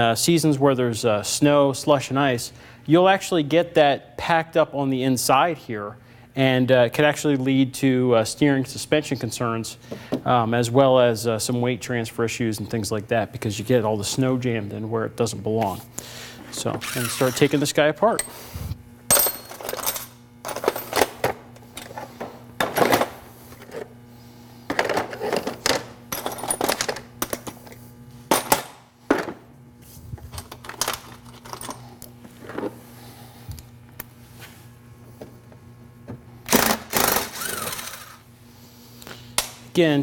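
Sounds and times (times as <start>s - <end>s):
steady low hum: 0.0s - 40.0s
cordless screwdriver whirring: 16.8s - 17.6s, 36.5s - 38.2s.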